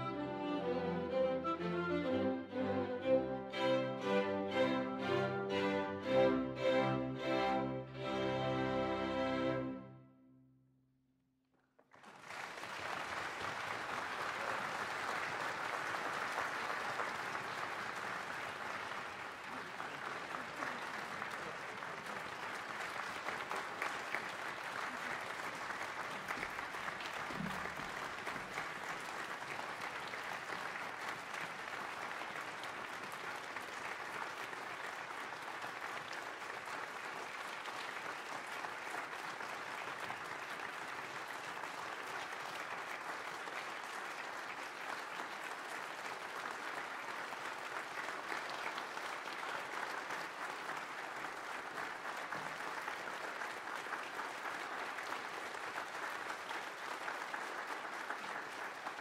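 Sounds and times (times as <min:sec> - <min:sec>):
audience applauding: 0:00.0 - 0:09.8, 0:11.8 - 0:59.0
music: 0:00.0 - 0:10.8.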